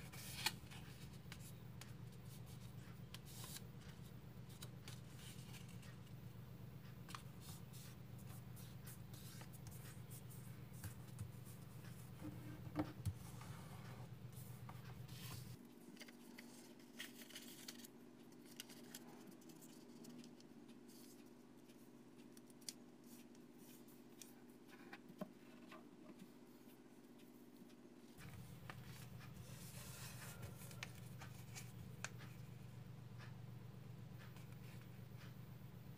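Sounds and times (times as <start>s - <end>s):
low steady hum: 0.0s - 35.9s
paper crinkling and rustling: 15.1s - 20.2s.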